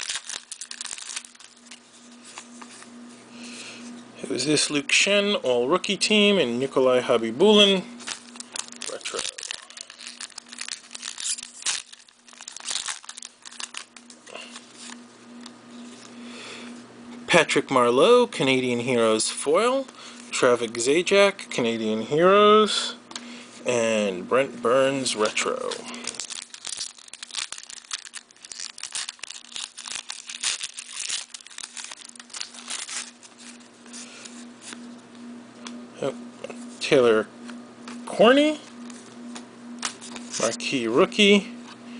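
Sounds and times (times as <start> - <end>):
plastic wrapper crinkling and tearing: 0.0 - 2.8, 8.0 - 15.5, 25.2 - 34.1, 39.8 - 40.6
cards rustling: 0.0 - 3.0, 8.0 - 15.0, 25.2 - 34.9, 38.8 - 40.6
faint steady hum: 0.0 - 41.9.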